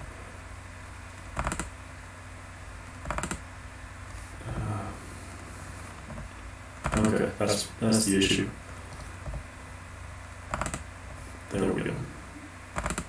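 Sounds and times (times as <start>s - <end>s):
low steady hum: 0.0s - 13.0s
computer control clicks: 1.4s - 1.7s.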